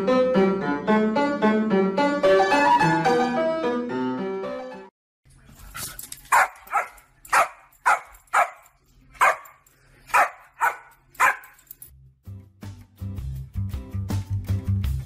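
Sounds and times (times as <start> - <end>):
dog barking: 6.3 - 11.6.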